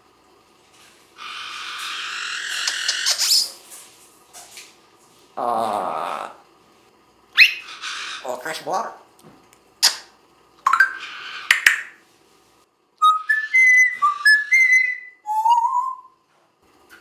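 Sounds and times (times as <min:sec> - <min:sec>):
parrot whistling: 0:07.4 - 0:08.3, 0:13.0 - 0:16.2.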